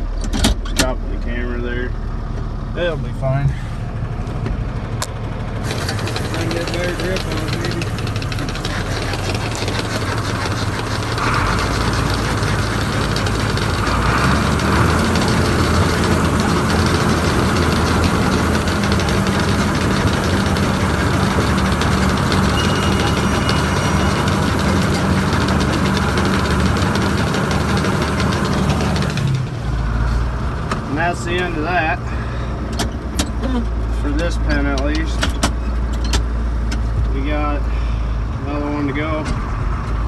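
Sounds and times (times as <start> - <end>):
tractor diesel engine running: 0.0 - 40.0
feeder wagon unloading feed: 5.6 - 30.0.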